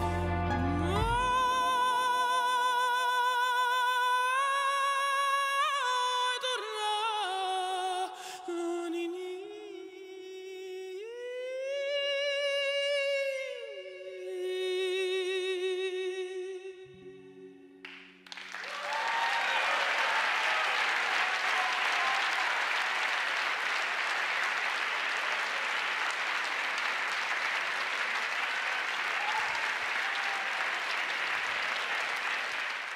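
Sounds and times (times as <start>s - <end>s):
band held chord: 0.0s - 1.8s
audience applause: 17.8s - 32.9s.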